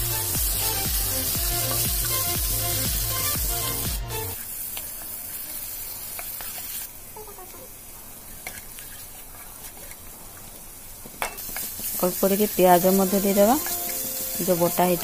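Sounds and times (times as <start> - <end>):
background music: 0.0 - 4.4, 12.6 - 15.0
paste sizzling in hot oil: 0.0 - 6.9, 11.3 - 15.0
spatula scraping and ticking: 0.7 - 2.9, 11.3 - 15.0.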